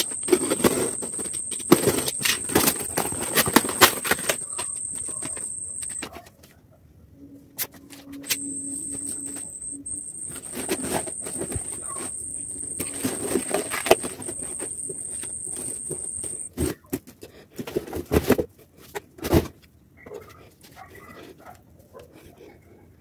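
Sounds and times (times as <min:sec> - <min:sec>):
high-pitched whine: 0:00.0 - 0:06.0, 0:08.2 - 0:16.5.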